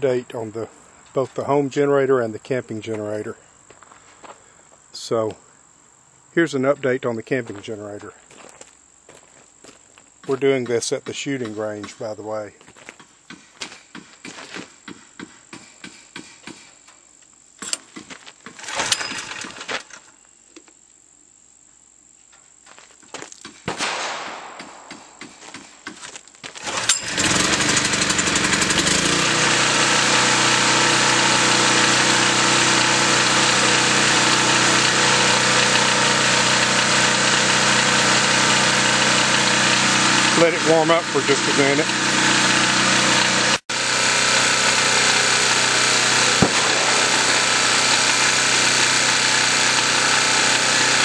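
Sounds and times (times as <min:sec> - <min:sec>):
recoil starter pull: 0:18.5 - 0:20.1, 0:26.6 - 0:51.0
generator engine running: 0:18.6 - 0:20.0, 0:26.6 - 0:51.0.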